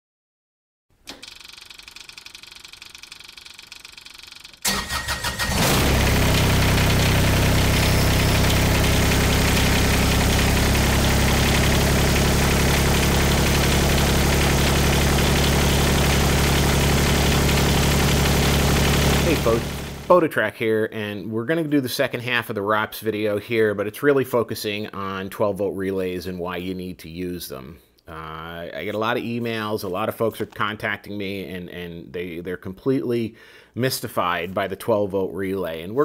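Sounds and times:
engine cranking and idling: 0:01.1 - 0:20.1.

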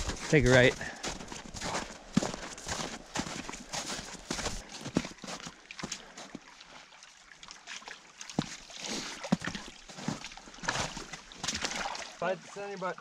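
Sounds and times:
footsteps in boots through snow: 0:00.0 - 0:06.3
boots splashing through water: 0:00.0 - 0:12.6.

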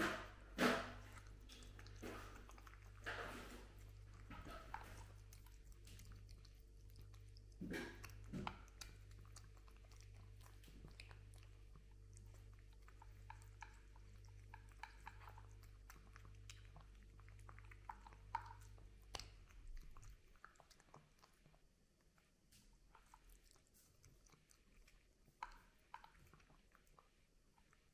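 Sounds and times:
cat chewing and crunching: 0:00.0 - 0:27.9
low steady hum: 0:00.0 - 0:27.9.

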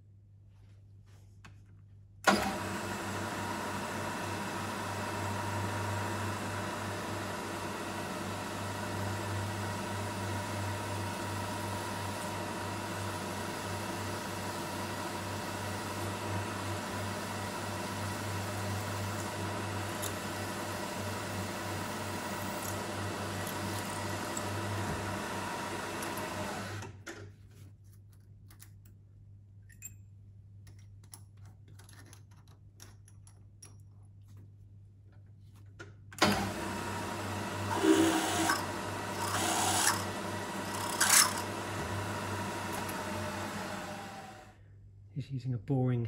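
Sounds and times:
milling machine cutting metal: 0:04.0 - 0:26.8, 0:36.2 - 0:44.4.

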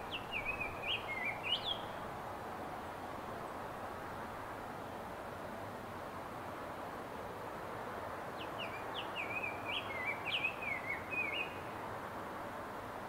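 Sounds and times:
bird song warbling: 0:00.0 - 0:02.0, 0:08.4 - 0:11.7
steady background hiss: 0:00.0 - 0:13.0.

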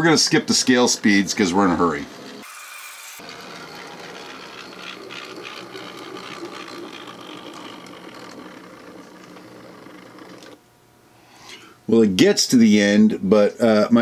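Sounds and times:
model train motor whirring: 0:00.6 - 0:10.6.

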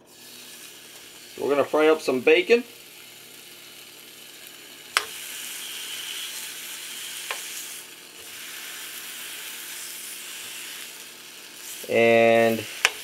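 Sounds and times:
bacon sizzling in frying pan: 0:00.0 - 0:13.0
tongs clicking against pan: 0:04.9 - 0:05.2, 0:12.8 - 0:13.0.

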